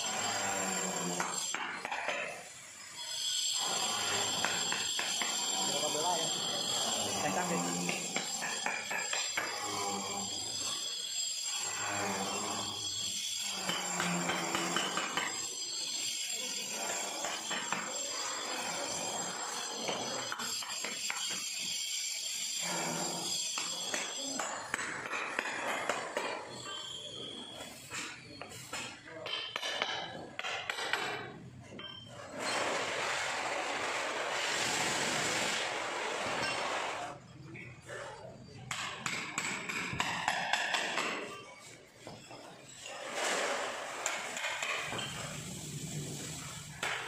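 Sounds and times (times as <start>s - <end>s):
hammer striking steel chisel: 1.0s - 2.5s, 3.5s - 10.0s, 12.0s - 18.7s, 19.5s - 22.2s, 23.4s - 32.5s, 38.6s - 42.2s.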